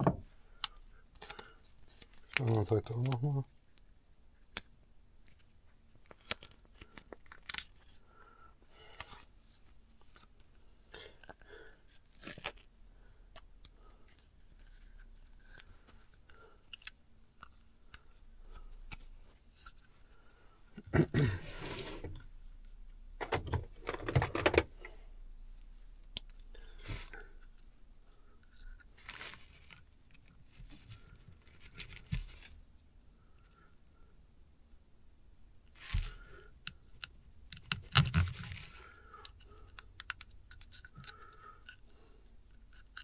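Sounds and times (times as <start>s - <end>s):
clicks and rustles of handling: 0.0s - 8.1s, 22.0s - 25.0s
duct tape ripping: 12.1s - 12.7s.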